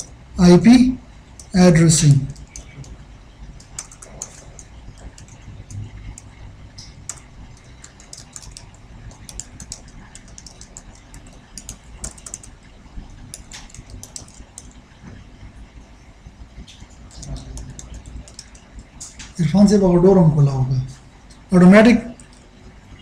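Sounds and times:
steady low hum: 0.0 - 23.0
keyboard keystroke clicks: 2.2 - 3.0, 3.6 - 12.6, 13.3 - 14.8, 17.0 - 19.4.

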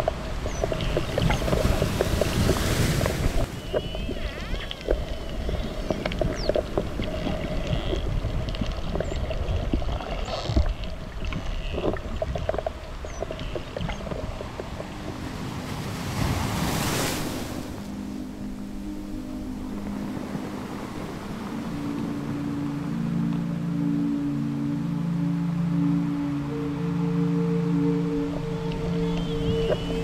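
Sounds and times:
low underwater hum: 0.0 - 30.0
dolphin whistles: 3.6 - 5.7, 28.0 - 30.0.

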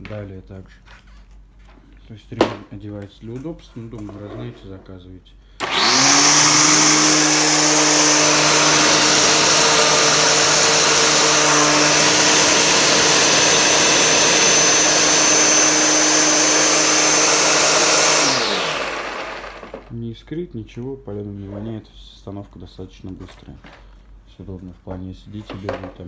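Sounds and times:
electric string trimmer motor running: 5.6 - 19.9.

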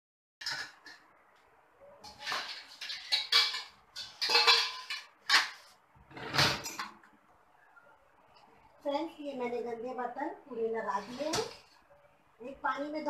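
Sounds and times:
metal dishes clattering: 0.4 - 1.1, 2.0 - 7.0.

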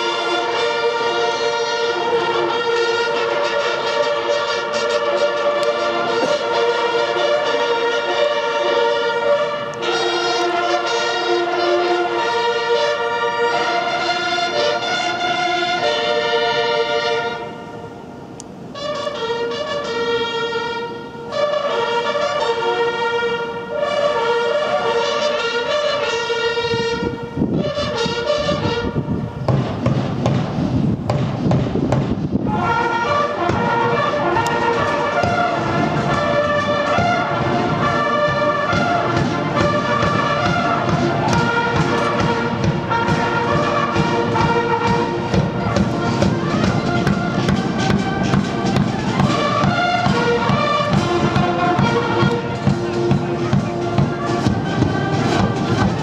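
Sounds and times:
brass band playing a march: 0.0 - 56.0
drums beating: 29.4 - 56.0.

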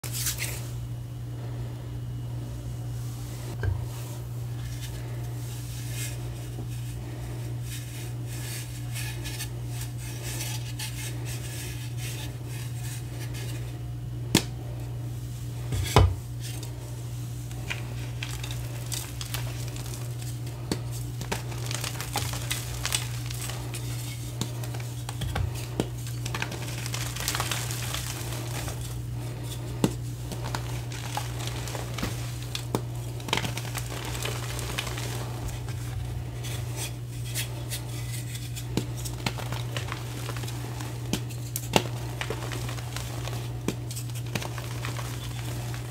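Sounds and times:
steady low hum: 0.0 - 45.9
chalk crunching and crumbling: 17.4 - 45.9.

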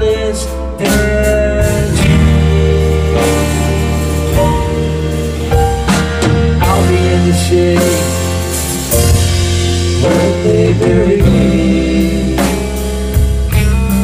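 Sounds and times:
man singing lead vocal: 0.0 - 3.4, 6.4 - 14.0
live rock band playing: 0.0 - 14.0
drum strikes: 0.9 - 14.0.

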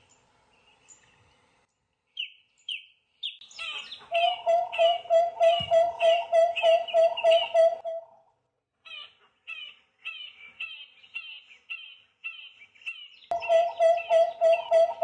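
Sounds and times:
barbet loud repeated notes: 4.2 - 8.2, 13.3 - 15.0.

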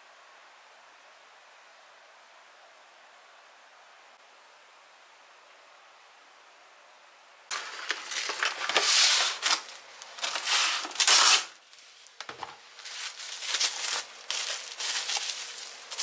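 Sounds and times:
plastic cling wrap crinkling: 7.5 - 16.0.

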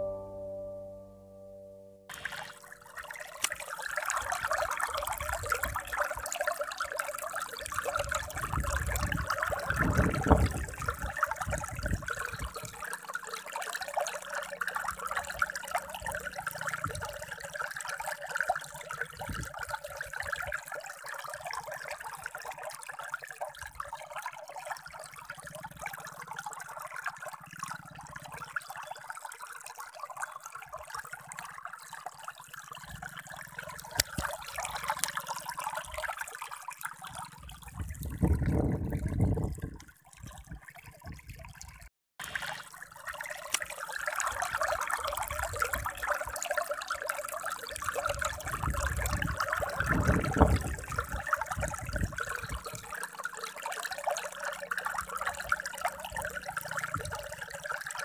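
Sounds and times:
shallow water trickling: 2.1 - 58.0.

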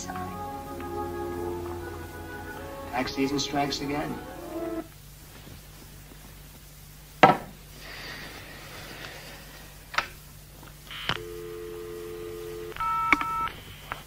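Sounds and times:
two-note dial tone: 11.2 - 13.5.

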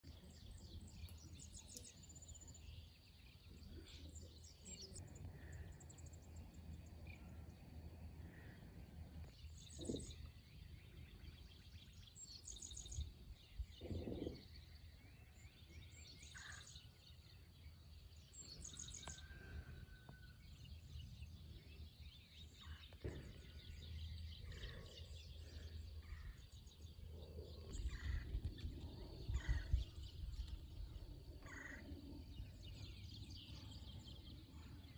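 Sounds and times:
birds chirping and calling: 8.2 - 34.9
faint low rumble: 12.8 - 34.9.

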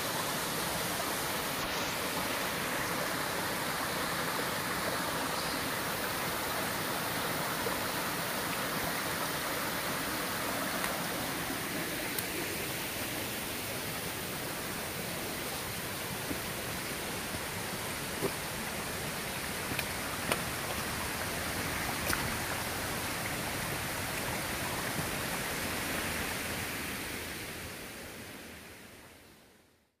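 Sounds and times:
mountain stream rushing: 0.0 - 28.9.

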